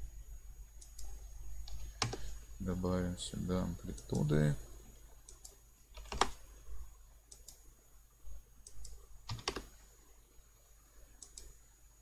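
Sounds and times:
low steady hum: 0:00.0 - 0:12.0
computer keystrokes: 0:00.8 - 0:02.2, 0:05.3 - 0:06.4, 0:07.3 - 0:07.6, 0:08.6 - 0:09.7, 0:11.2 - 0:11.6
mouse clicks: 0:07.3 - 0:07.6, 0:11.2 - 0:11.6.

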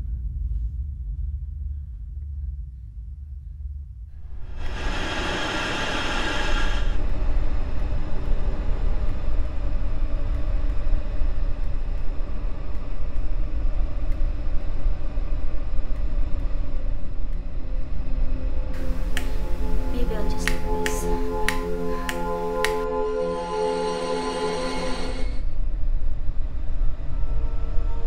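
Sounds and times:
low rumbling horror drone: 0:00.0 - 0:28.0
bright hissing swell: 0:04.3 - 0:07.0.

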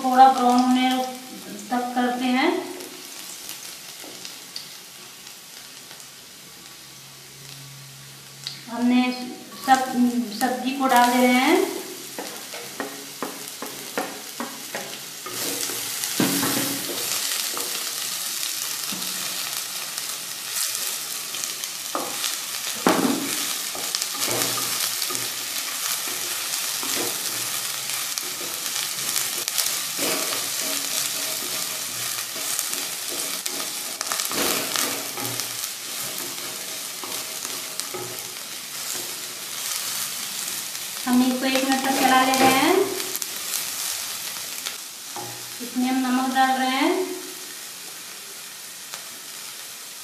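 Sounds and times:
vegetables sizzling in oil: 0:00.0 - 0:50.0
spatula scraping a pan: 0:12.2 - 0:18.1, 0:20.6 - 0:40.2.

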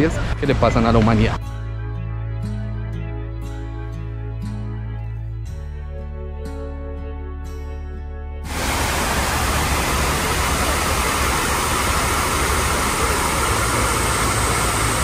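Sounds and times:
waterfall rushing: 0:08.5 - 0:15.0.

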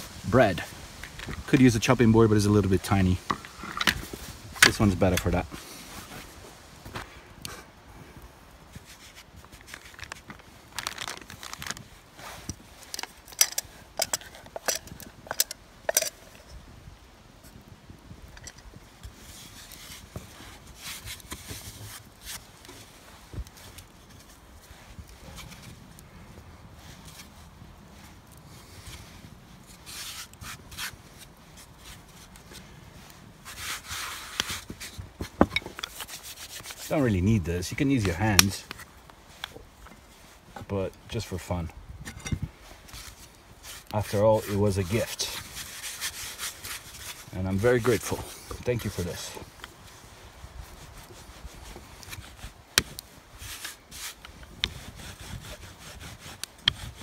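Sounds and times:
metal pot clicking and scraping: 0:12.8 - 0:16.6.

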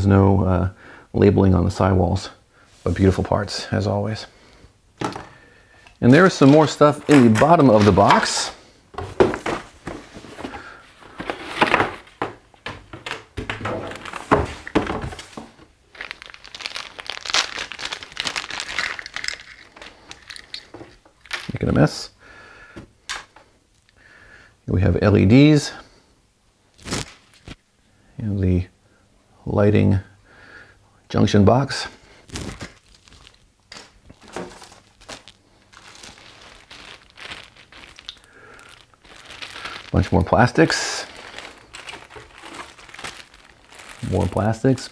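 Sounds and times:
plastic bags crinkling: 0:05.0 - 0:12.3, 0:12.9 - 0:21.8, 0:32.2 - 0:44.9.

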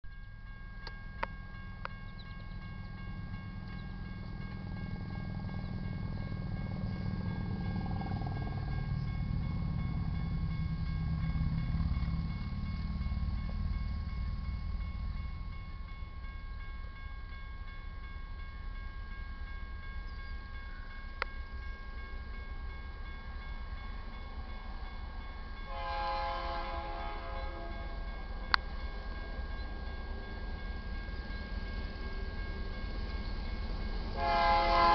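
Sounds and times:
crossing warning bell ringing: 0:00.1 - 0:34.9
distant locomotive horn: 0:25.7 - 0:28.2, 0:34.1 - 0:34.9.

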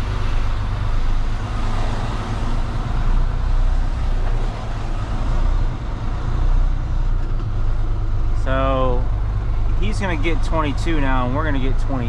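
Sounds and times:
diesel truck engine rumbling: 0:00.0 - 0:12.0.

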